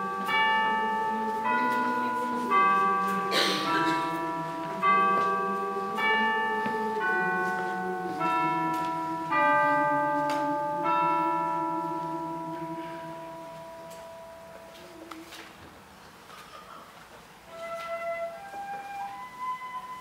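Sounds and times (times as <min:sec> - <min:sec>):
bells ringing: 0:00.0 - 0:15.1.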